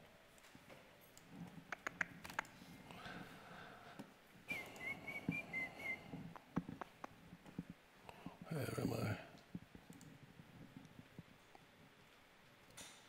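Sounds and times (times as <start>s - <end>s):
computer mouse clicks: 1.2s - 2.6s, 9.9s - 10.2s
person whistling softly: 4.5s - 6.3s.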